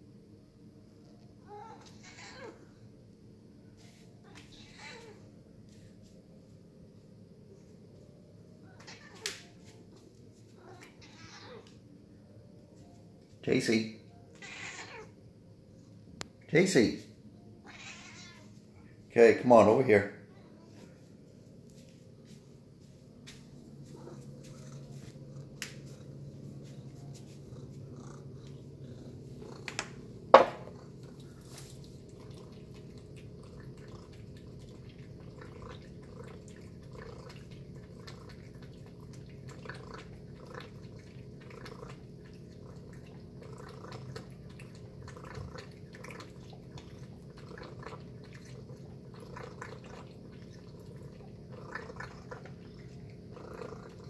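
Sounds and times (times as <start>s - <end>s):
steady low hum: 5.1s - 8.8s, 18.5s - 54.0s
cat chewing and licking: 23.8s - 54.0s.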